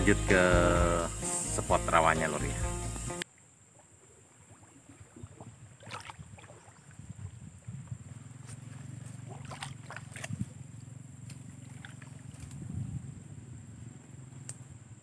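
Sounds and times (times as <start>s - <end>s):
wading through shallow water: 3.3s - 12.8s.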